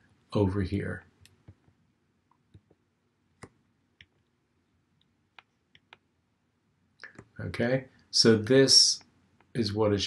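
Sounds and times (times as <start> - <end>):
computer mouse clicks: 5.0 - 6.1.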